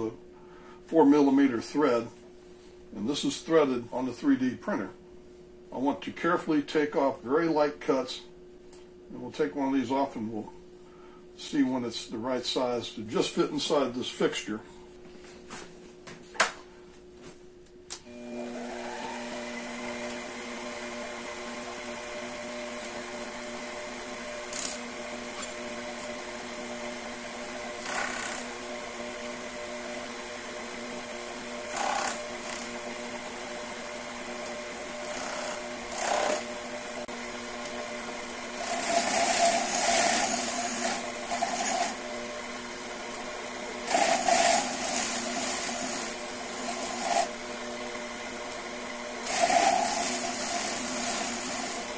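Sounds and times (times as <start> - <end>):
lathe motor whining: 18.1 - 51.9
lathe cutting metal scrape: 31.7 - 32.8, 34.9 - 36.5, 38.5 - 42.1, 43.8 - 47.4, 49.2 - 51.9.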